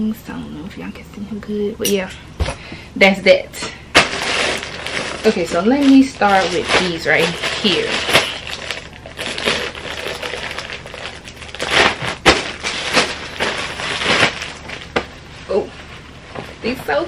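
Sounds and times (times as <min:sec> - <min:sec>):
plastic bag crinkling: 0:04.0 - 0:16.0.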